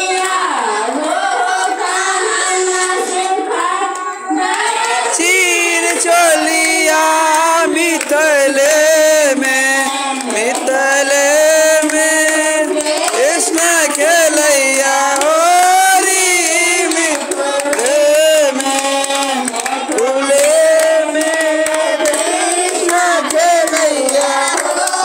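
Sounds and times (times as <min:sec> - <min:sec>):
group singing along: 0:00.0 - 0:25.0
woman singing into microphone: 0:00.0 - 0:25.0.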